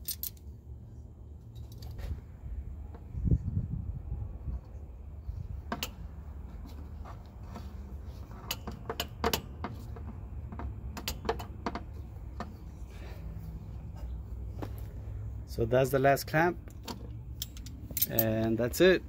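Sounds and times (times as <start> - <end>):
metal clicks of pliers on clamp: 16.7 - 18.5.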